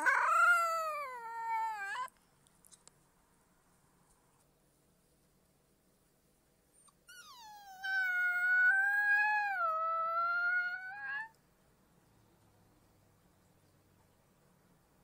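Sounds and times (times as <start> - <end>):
wolf pup howling: 0.0 - 2.1, 7.1 - 11.3.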